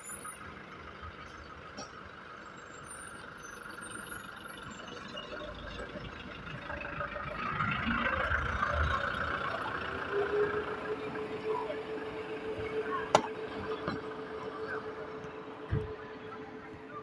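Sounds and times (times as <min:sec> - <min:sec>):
distant vehicle engine running: 0:00.0 - 0:17.0.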